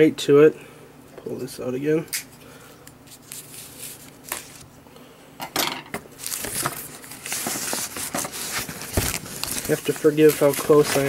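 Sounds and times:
wrapping sheet rustling: 0:03.0 - 0:04.6, 0:06.2 - 0:11.0.

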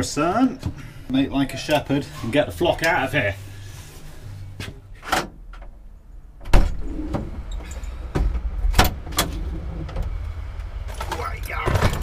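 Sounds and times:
low outdoor rumble: 0:00.0 - 0:12.0
van doors clunking open: 0:04.9 - 0:12.0.

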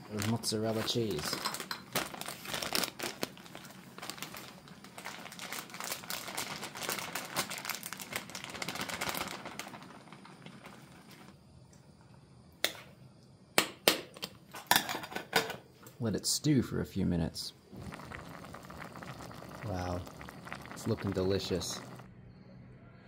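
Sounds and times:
plastic packet crinkling: 0:00.1 - 0:11.3, 0:17.8 - 0:22.1.

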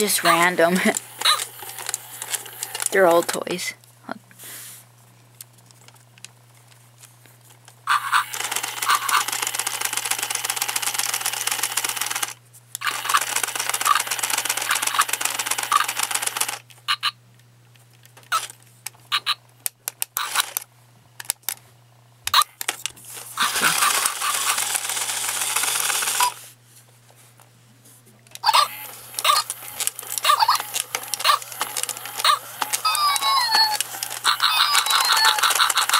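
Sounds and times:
toy motors whirring: 0:00.0 - 0:03.7, 0:07.8 - 0:17.1, 0:18.2 - 0:20.6, 0:22.3 - 0:26.5, 0:28.3 - 0:35.9.

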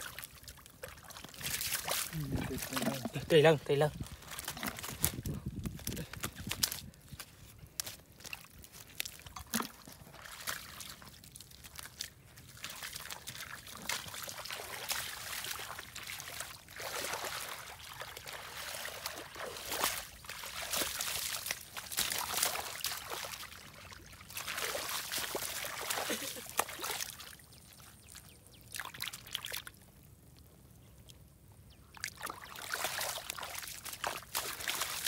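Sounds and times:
hands sloshing in muddy water: 0:00.0 - 0:29.8, 0:32.0 - 0:35.0.

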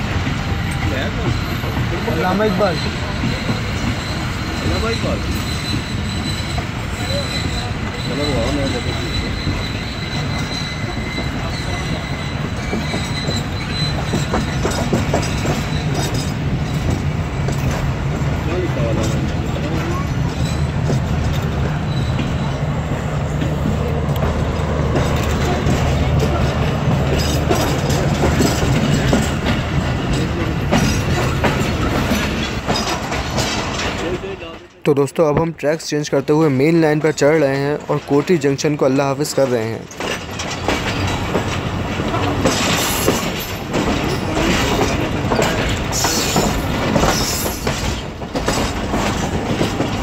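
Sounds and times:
train wheel rumble: 0:00.0 - 0:50.0
high wheel squeal: 0:00.1 - 0:17.7, 0:18.5 - 0:23.1, 0:39.9 - 0:48.1
sharp track clicks: 0:11.2 - 0:50.0.

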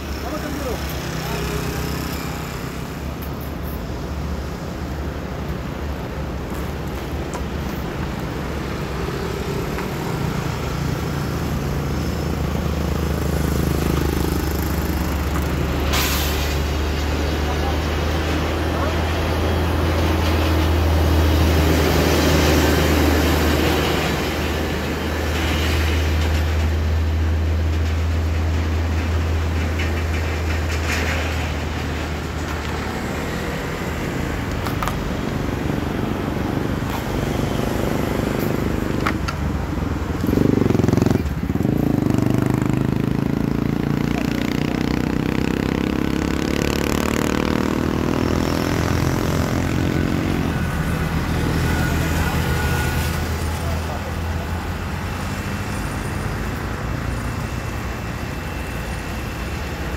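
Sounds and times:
vehicle passing by: 0:28.9 - 0:59.9
engine speeding up: 0:39.9 - 0:57.1.

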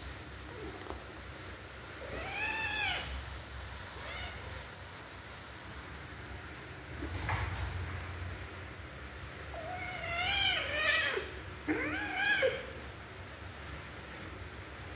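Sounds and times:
kitten meowing: 0:02.0 - 0:03.2, 0:04.0 - 0:04.6.

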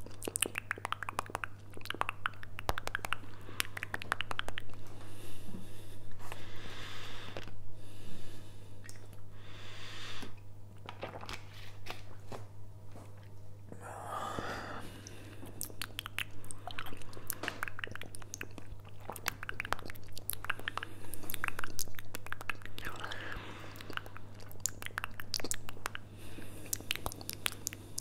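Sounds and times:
wet mouth smacks and clicks: 0:00.0 - 0:04.8, 0:08.8 - 0:09.2, 0:15.0 - 0:23.1, 0:23.7 - 0:28.0
steady low hum: 0:00.0 - 0:28.0.

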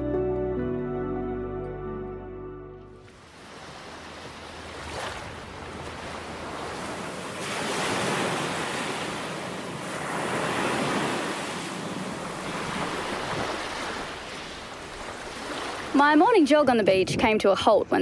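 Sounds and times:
wind: 0:02.9 - 0:18.0
surf washing onto beach: 0:03.0 - 0:16.0.

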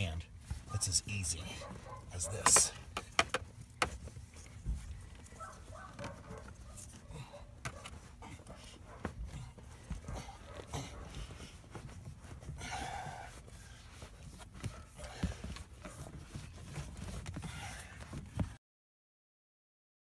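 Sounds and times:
carpet rustling and scraping: 0:00.0 - 0:18.6
small knocks and handling noise: 0:02.4 - 0:07.0.

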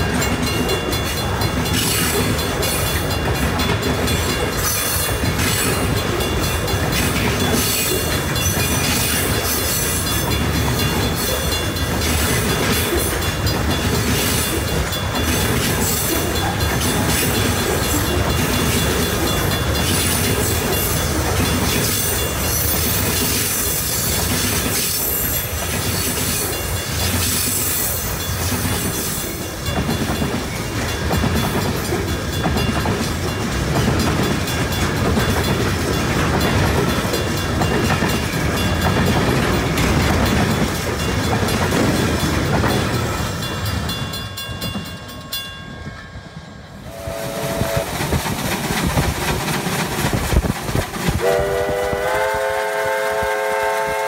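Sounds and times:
train wheels clattering over rail joints: 0:00.0 - 0:45.3, 0:47.4 - 0:52.0
steam locomotive whistle: 0:46.8 - 0:48.0, 0:51.1 - 0:54.0
train horn toot: 0:46.8 - 0:48.0, 0:51.2 - 0:54.0.

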